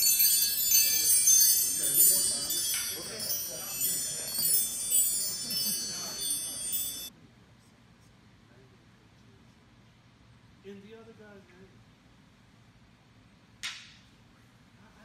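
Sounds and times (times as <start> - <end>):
chimes ringing: 0.0 - 7.1.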